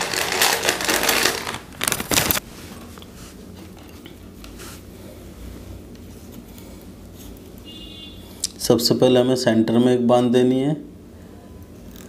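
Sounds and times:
plastic bag crinkling: 0.0s - 2.4s.

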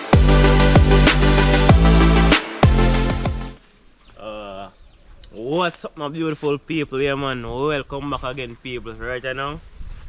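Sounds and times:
electronic music with heavy bass: 0.0s - 3.6s.

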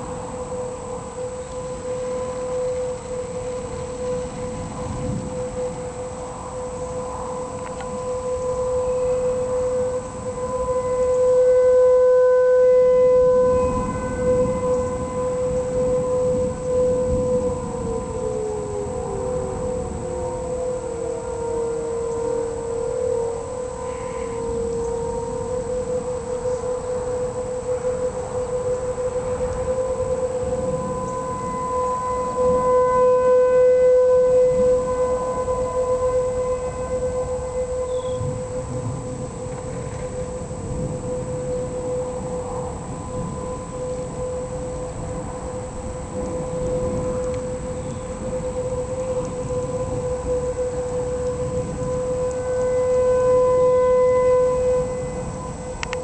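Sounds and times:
warning siren wailing: 0.0s - 56.0s.

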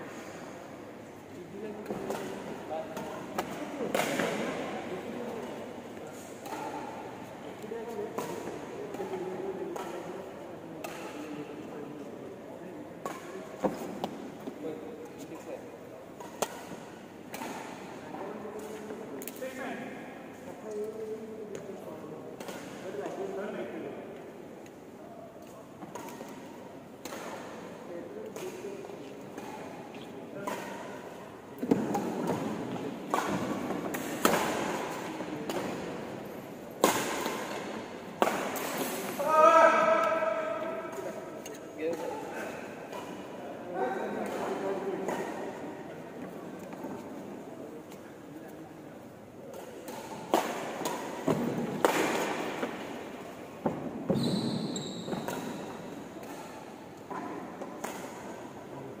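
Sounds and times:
rackets hitting shuttlecock: 1.8s - 5.6s, 6.4s - 10.2s, 25.4s - 36.0s, 36.8s - 43.3s, 49.4s - 54.2s, 55.1s - 58.5s
shoe squeak: 54.1s - 55.3s.

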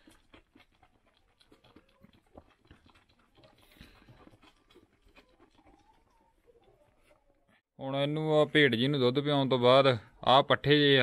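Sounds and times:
lamb sucking from bottle teat: 0.0s - 7.2s.

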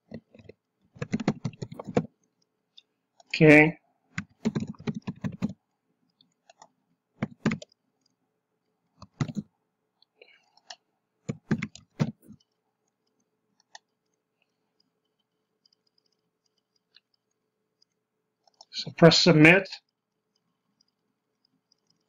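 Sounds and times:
keyboard typing: 0.0s - 2.5s, 4.1s - 8.2s, 8.9s - 9.5s, 10.3s - 18.7s, 19.9s - 22.0s.

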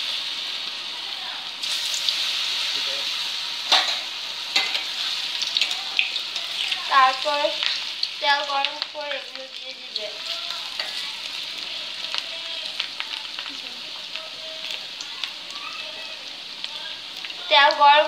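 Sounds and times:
fries sizzling in hot oil: 0.0s - 18.0s
spatula stirring in pan: 3.6s - 9.4s, 10.0s - 15.4s.

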